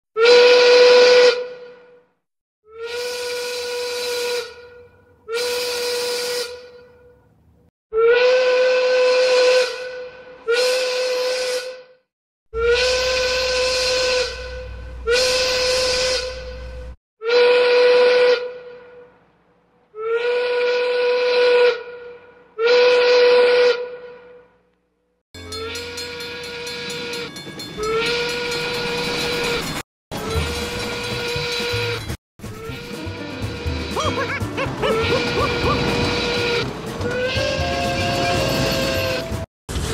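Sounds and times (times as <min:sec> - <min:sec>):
steam locomotive whistle blasts: 0:00.2 - 0:02.0, 0:02.7 - 0:07.1, 0:08.0 - 0:12.0, 0:12.6 - 0:18.9, 0:22.6 - 0:24.4, 0:34.9 - 0:39.5.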